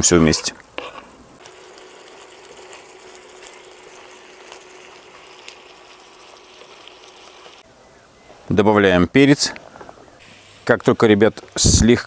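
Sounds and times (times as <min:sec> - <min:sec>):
meat sizzling in a pan: 0:01.4 - 0:07.6.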